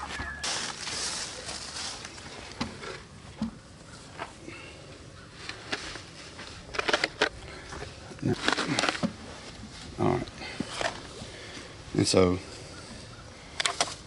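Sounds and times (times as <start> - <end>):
feathers and plastic rustling: 0.0 - 3.0.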